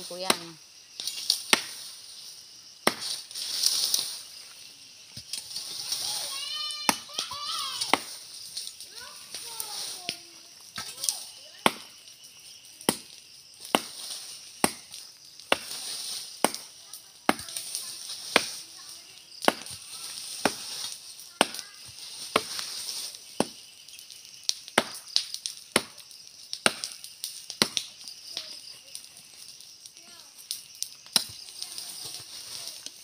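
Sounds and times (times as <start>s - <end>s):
blade chopping wood: 0.2s - 0.5s, 1.5s - 1.8s, 2.8s - 3.2s, 6.8s - 8.2s, 11.6s - 11.9s, 14.6s - 15.8s, 16.4s - 16.6s, 17.3s - 17.6s, 18.3s - 18.6s, 19.4s - 20.8s, 21.4s - 21.7s, 22.3s - 22.6s, 24.7s - 25.0s, 26.6s - 27.0s.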